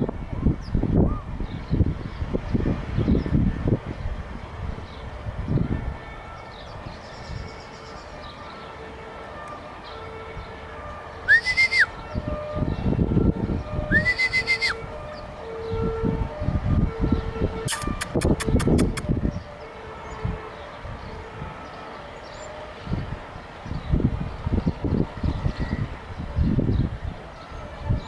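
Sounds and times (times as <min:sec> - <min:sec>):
wind rumbling on microphone: 0:00.0 - 0:08.4, 0:10.0 - 0:28.0
sliding whistles: 0:11.3 - 0:11.9, 0:13.9 - 0:14.8.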